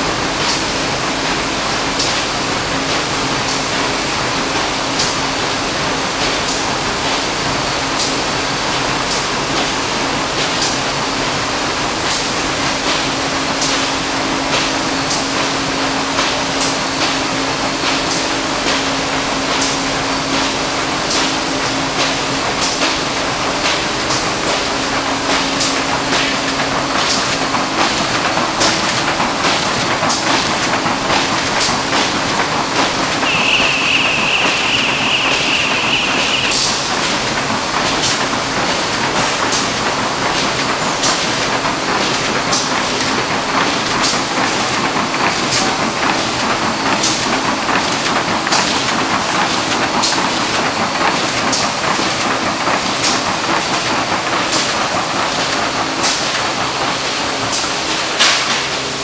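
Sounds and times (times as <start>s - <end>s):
machine clacks: 0.0s - 59.0s
printing machine running: 0.0s - 59.0s
high steady whine: 33.1s - 37.0s.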